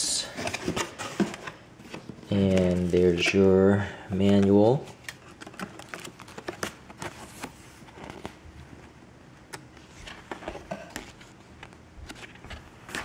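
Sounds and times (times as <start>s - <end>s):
paper pages rustling: 4.2s - 13.0s.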